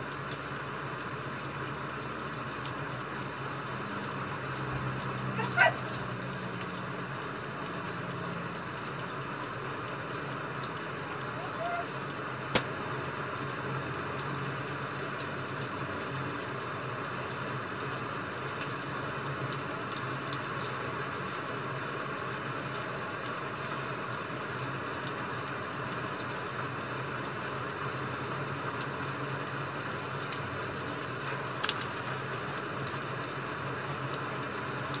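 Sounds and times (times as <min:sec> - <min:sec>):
rain hissing: 0:00.0 - 0:35.0
wood fire crackling: 0:12.4 - 0:13.1.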